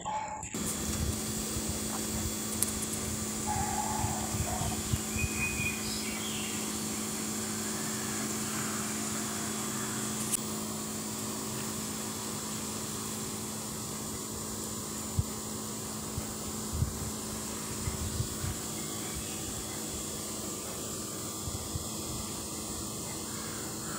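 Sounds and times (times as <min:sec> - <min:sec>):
steady mechanical hum: 0:00.0 - 0:23.9
faint chirps: 0:03.3 - 0:10.4, 0:17.5 - 0:21.4.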